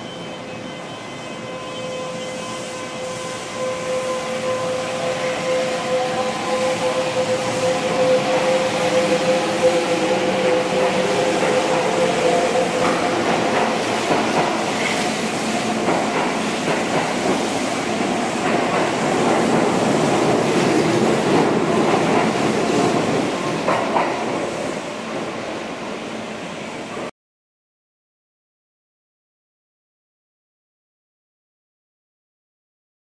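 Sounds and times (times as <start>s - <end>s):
train wheels rumbling in station: 0.0s - 27.1s.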